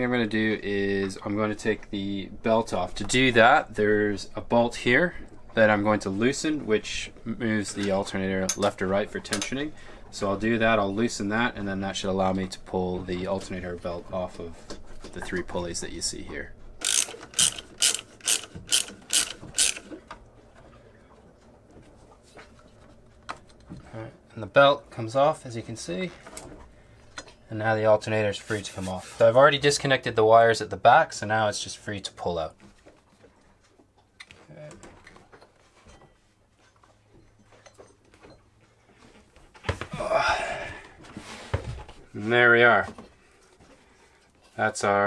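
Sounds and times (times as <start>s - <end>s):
ratchet wrench clicking: 16.8s - 19.9s.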